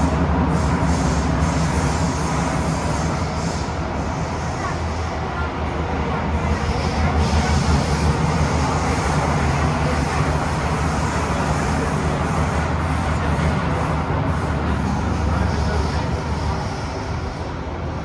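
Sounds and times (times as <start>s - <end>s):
train cabin rumble and rushing: 0.0s - 18.0s.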